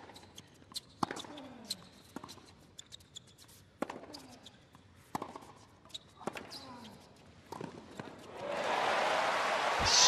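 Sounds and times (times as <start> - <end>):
shoe squeaks: 0.1 - 4.7, 5.8 - 7.0.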